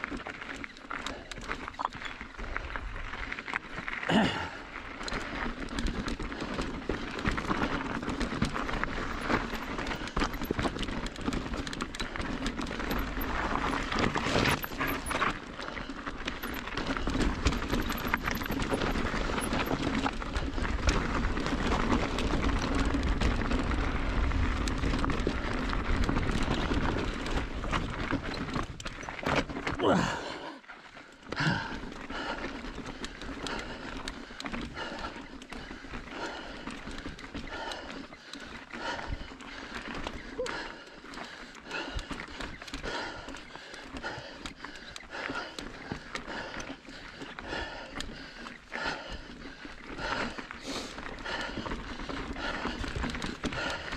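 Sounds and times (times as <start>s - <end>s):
bike tyres crunching over rock: 0.0s - 30.3s, 30.9s - 53.9s
rider breathing hard: 0.1s - 53.9s.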